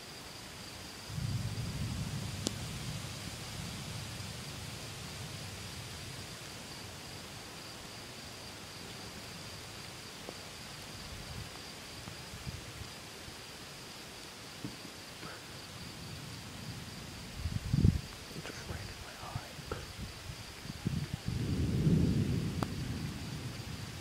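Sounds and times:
night insects buzzing: 0:00.0 - 0:24.0
low outdoor rumble: 0:01.1 - 0:09.9, 0:15.2 - 0:24.0
faint ticks: 0:02.4 - 0:02.7, 0:10.2 - 0:12.6, 0:22.6 - 0:22.9.

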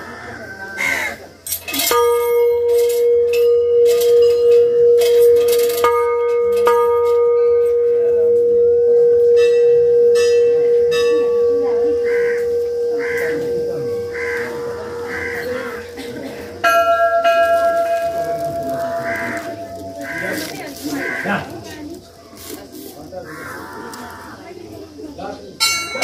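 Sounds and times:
crows cawing: 0:00.0 - 0:01.3, 0:11.8 - 0:16.6, 0:17.9 - 0:22.0, 0:23.2 - 0:24.4
temple bell ringing: 0:01.5 - 0:21.2, 0:25.6 - 0:26.0.

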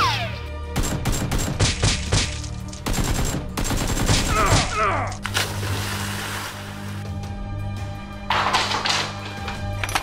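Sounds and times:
music: 0:00.0 - 0:10.0
rapid gunfire shots: 0:00.8 - 0:02.2, 0:02.8 - 0:04.6.

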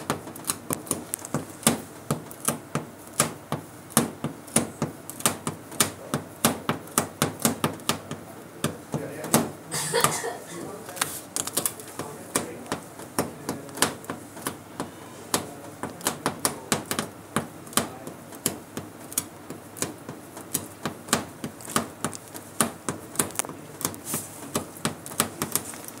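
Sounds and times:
tape residue tapping metal sheet: 0:10.9 - 0:26.0.

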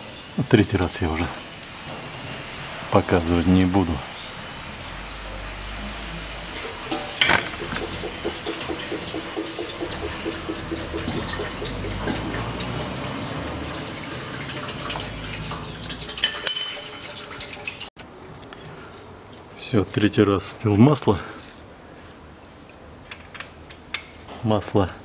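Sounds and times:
fluid trickling from drain hole: 0:04.3 - 0:17.9
metallic clinks: 0:16.2 - 0:17.2.

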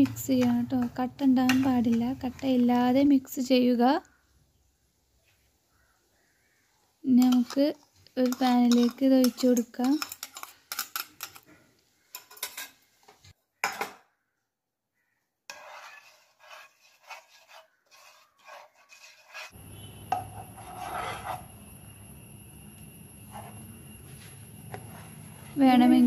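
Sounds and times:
spatula stirring in pan: 0:05.2 - 0:13.0, 0:15.5 - 0:21.8, 0:22.9 - 0:25.9
metal spoon scraping ceramic bowl: 0:07.2 - 0:11.5, 0:15.5 - 0:21.7.

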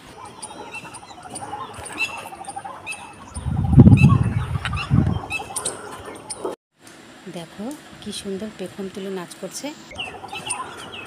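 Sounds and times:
small birds chirping: 0:00.0 - 0:06.5, 0:09.8 - 0:11.0
loud low rumble: 0:03.4 - 0:05.3.

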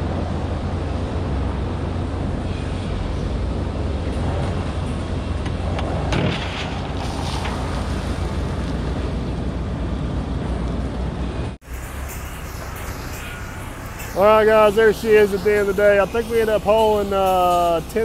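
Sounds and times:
diesel truck engine running: 0:00.0 - 0:18.0
gravel load pouring out: 0:06.0 - 0:09.3.

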